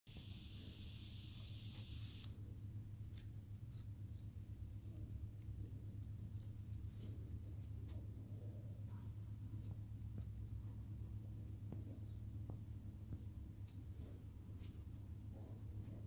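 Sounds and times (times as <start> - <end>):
high hiss: 0.1 - 2.3
steady low hum: 0.1 - 16.0.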